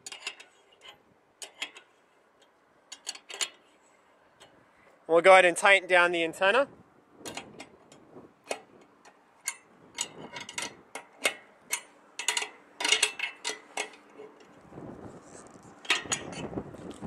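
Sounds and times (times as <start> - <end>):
wrench clicking on bolts: 0.0 - 1.9, 9.4 - 14.1.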